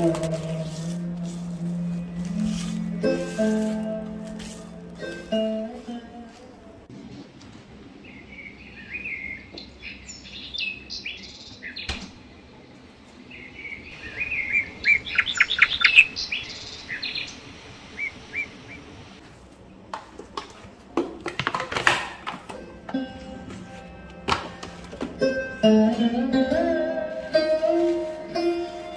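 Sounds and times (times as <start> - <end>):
baking paper rustling: 0.0 - 6.8
small birds chirping and twittering: 8.0 - 12.4, 13.0 - 19.2.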